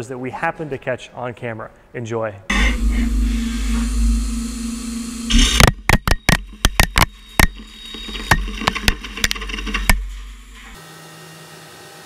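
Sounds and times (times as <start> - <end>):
mill spindle humming: 2.5 - 10.8
sharp metallic knocks: 5.3 - 10.0.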